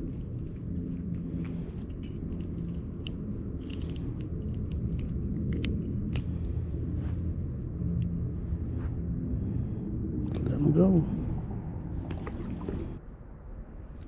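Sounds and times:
handling clicks and crackles: 0:00.0 - 0:07.0
steady low rumble: 0:00.0 - 0:14.0.

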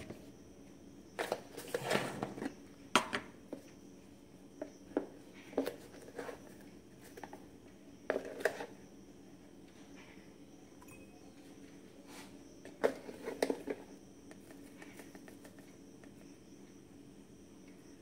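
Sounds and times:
plastic container handling noises: 0:12.6 - 0:15.7.

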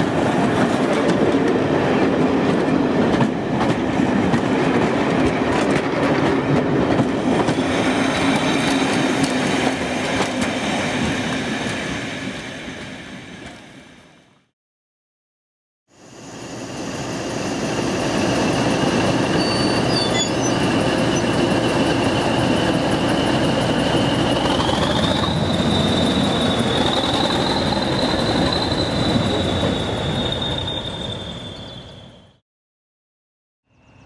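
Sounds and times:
diesel locomotive engine rumbling: 0:16.0 - 0:32.4.

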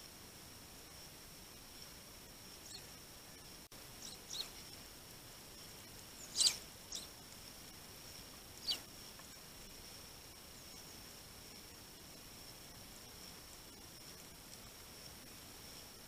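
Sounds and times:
faint high whine: 0:00.0 - 0:16.0
sparrows chirping: 0:02.6 - 0:02.9, 0:04.0 - 0:04.8, 0:06.1 - 0:07.2, 0:08.6 - 0:08.9.

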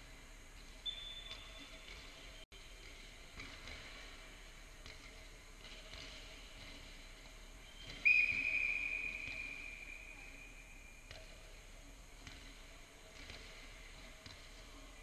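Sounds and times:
referee's whistle blast: 0:08.0 - 0:10.1.

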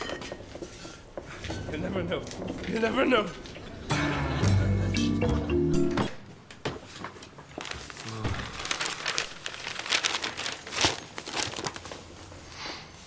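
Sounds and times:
newspaper pages rustling: 0:06.8 - 0:12.6.

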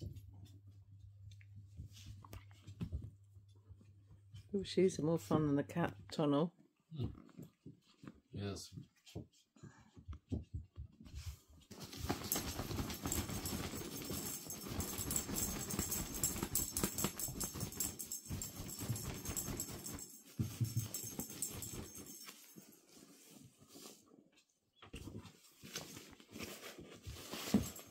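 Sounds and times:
puppies scuffling on blankets: 0:07.3 - 0:27.9.

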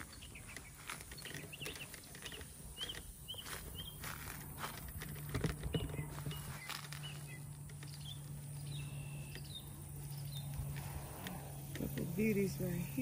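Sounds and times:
stems snapping: 0:00.0 - 0:08.3
rustling leaves: 0:00.0 - 0:13.0
steady low hum: 0:00.0 - 0:13.0.

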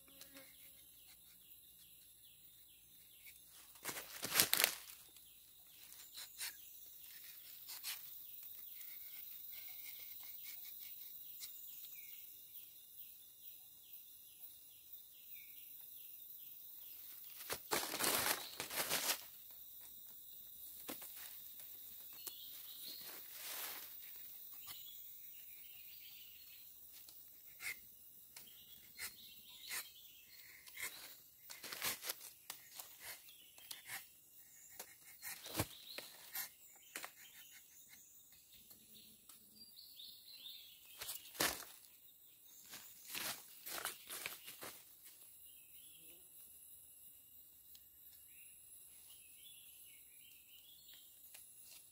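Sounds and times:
insects calling: 0:00.0 - 0:51.9
footsteps in dry leaves: 0:03.6 - 0:05.2, 0:17.3 - 0:19.4, 0:22.8 - 0:24.0, 0:41.0 - 0:41.9, 0:42.7 - 0:44.8
knife shaving tree bark: 0:05.7 - 0:11.6, 0:26.9 - 0:27.8, 0:28.4 - 0:38.0.

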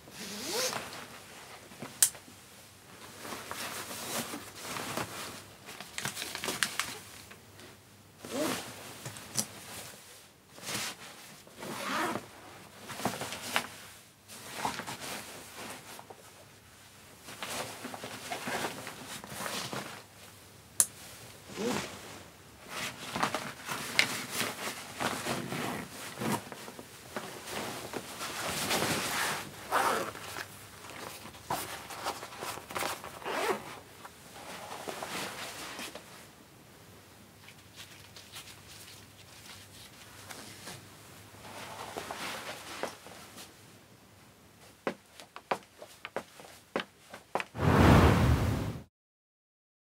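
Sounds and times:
nylon straps sliding: 0:00.2 - 0:00.8, 0:11.6 - 0:12.2, 0:28.7 - 0:30.2, 0:32.7 - 0:33.6
zip being worked: 0:00.2 - 0:00.8, 0:11.8 - 0:12.1, 0:29.7 - 0:30.1, 0:33.2 - 0:33.6.

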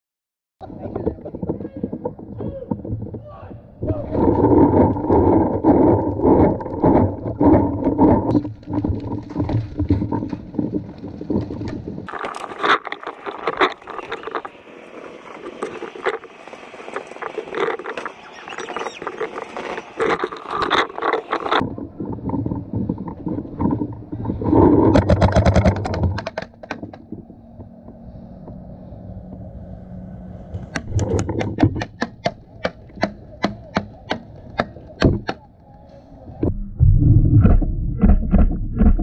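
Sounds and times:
paintballs striking wooden fence: 0:30.8 - 0:35.4.

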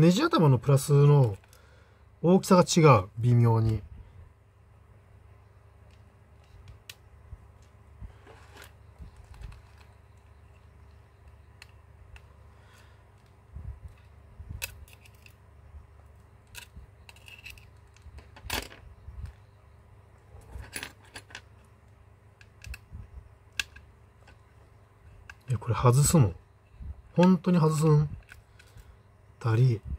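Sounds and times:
small tools clicking on phone: 0:23.5 - 0:24.4.

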